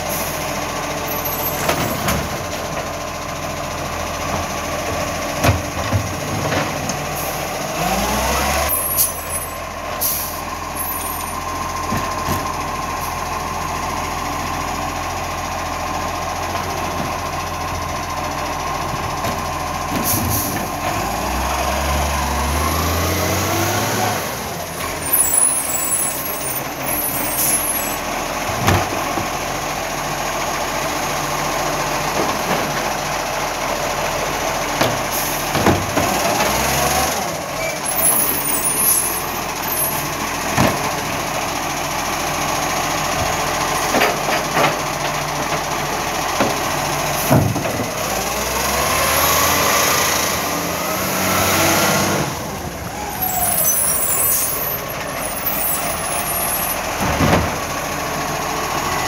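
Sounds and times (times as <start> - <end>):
garbage truck diesel engine: 0.0 - 59.0
air brakes hissing: 10.0 - 11.2, 53.0 - 56.7.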